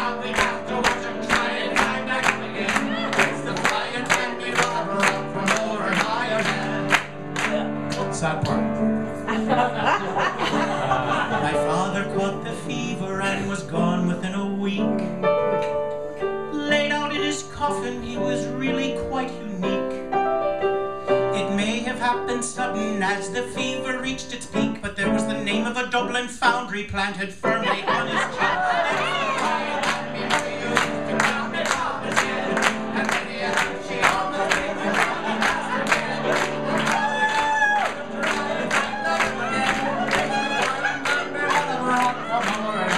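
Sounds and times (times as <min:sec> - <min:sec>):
man singing: 0:00.0 - 0:07.1, 0:08.0 - 0:08.7, 0:11.2 - 0:15.2, 0:16.5 - 0:20.0, 0:21.3 - 0:28.5, 0:38.2 - 0:42.9
instrumental backing music: 0:00.0 - 0:42.9
piano accompaniment: 0:00.0 - 0:42.9.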